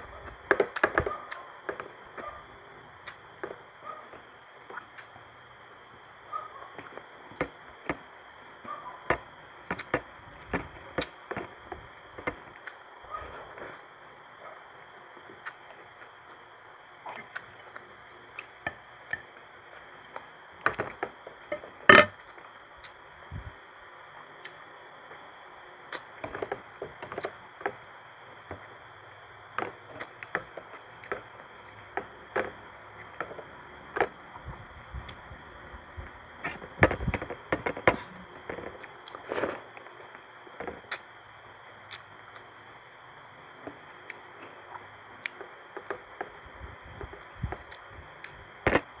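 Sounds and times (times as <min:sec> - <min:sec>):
wet chewing and smacking: 0:17.0 - 0:20.3, 0:41.8 - 0:42.4
spoon knocking on plates: 0:21.5 - 0:22.1.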